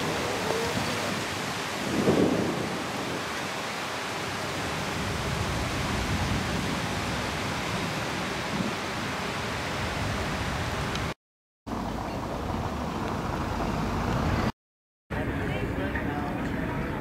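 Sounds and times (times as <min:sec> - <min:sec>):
wind rushing: 0:00.0 - 0:03.8.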